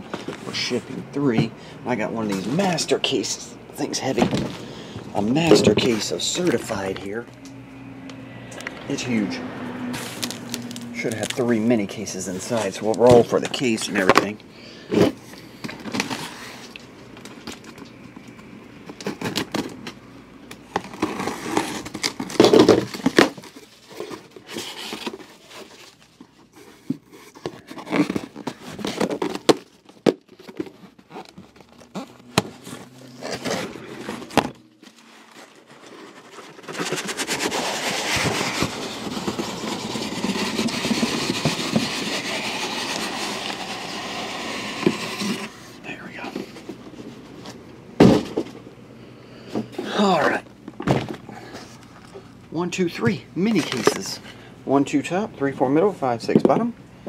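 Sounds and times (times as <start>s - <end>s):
cardboard rasping open: 20.7s - 45.8s
knocks and thumps on cardboard: 48.0s - 48.5s.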